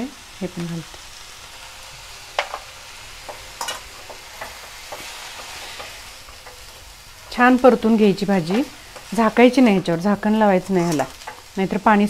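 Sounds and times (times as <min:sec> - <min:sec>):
vegetables sizzling in hot oil: 0:00.0 - 0:12.0
spatula scraping and tapping pan: 0:02.4 - 0:11.5.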